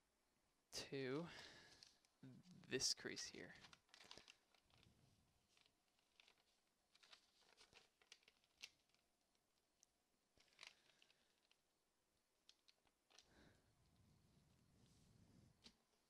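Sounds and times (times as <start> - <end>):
paper rustling and crinkling: 3.2 - 9.6, 10.3 - 11.7, 12.4 - 13.6.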